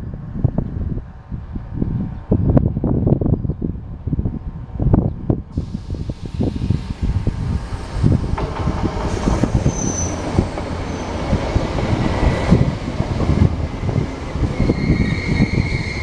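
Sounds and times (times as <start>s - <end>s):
train wheels knocking over rails: 7.8s - 14.9s
high wheel squeal: 9.0s - 11.6s, 13.8s - 16.0s.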